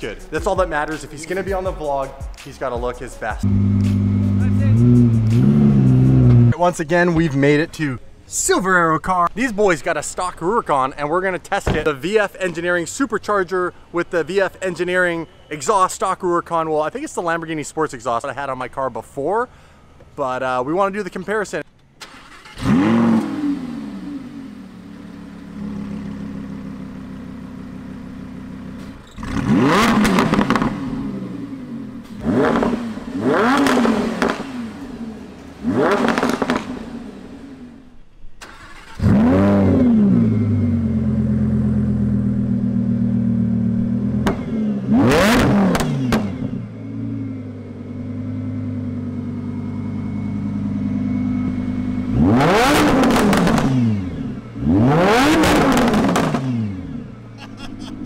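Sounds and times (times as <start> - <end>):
sports car engine revving: 3.4 - 6.6, 22.4 - 37.9, 38.6 - 58.0.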